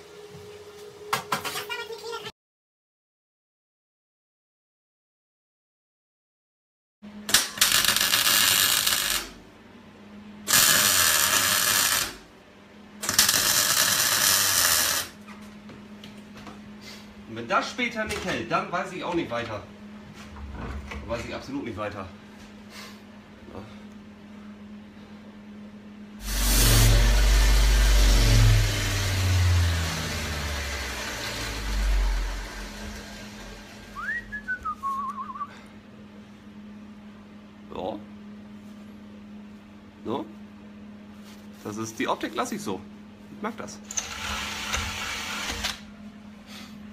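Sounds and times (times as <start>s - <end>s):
steady low hum: 7.1s - 46.9s
electric arc welding: 7.3s - 9.4s, 10.5s - 12.3s, 13.0s - 15.2s, 26.2s - 34.0s, 43.9s - 45.8s
person whistling: 34.0s - 35.6s.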